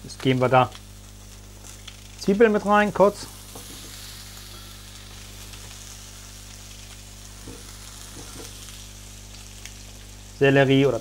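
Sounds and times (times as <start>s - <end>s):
meat sizzling in a frying pan: 0.0s - 11.0s.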